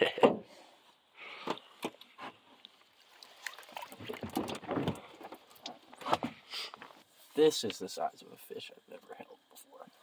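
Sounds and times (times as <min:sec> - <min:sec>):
water splashing: 0:02.8 - 0:05.9
fish thrashing in net: 0:03.1 - 0:05.7.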